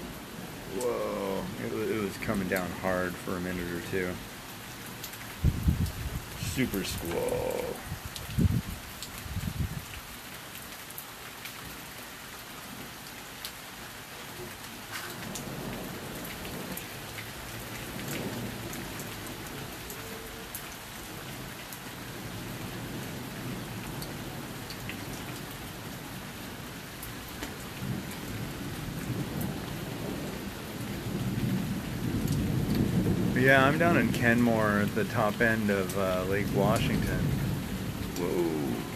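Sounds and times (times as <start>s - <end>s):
heavy rain: 0.0s - 38.9s
low rolling thunder: 0.6s - 3.0s, 5.4s - 9.8s, 27.8s - 38.9s
raindrops ticking: 0.6s - 13.6s, 14.5s - 38.9s.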